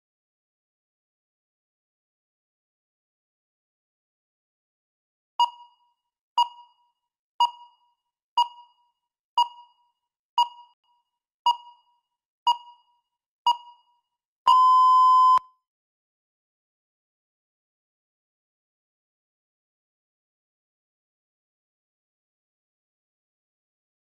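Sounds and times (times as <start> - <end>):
countdown timer short beeps: 5.4 - 8.8, 9.4 - 9.8, 10.4 - 10.8, 11.5 - 11.9, 12.5 - 12.9, 13.5 - 13.9, 14.5 - 15.5
timer long beep: 14.5 - 15.5.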